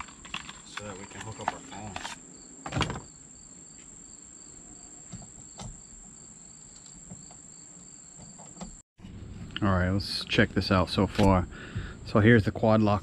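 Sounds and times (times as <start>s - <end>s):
crickets chirping: 0.0s - 8.8s.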